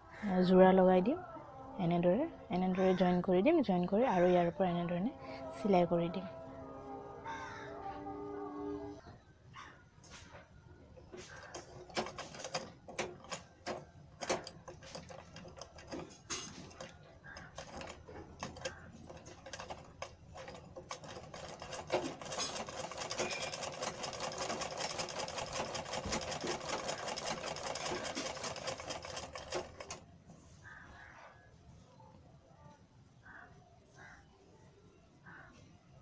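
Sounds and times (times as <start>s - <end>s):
sewing machine stitching: 11.2s - 30.0s.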